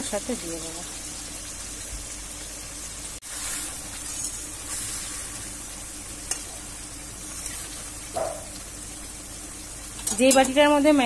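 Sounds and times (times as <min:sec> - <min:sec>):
fish sizzling in a pan: 0:00.0 - 0:11.0.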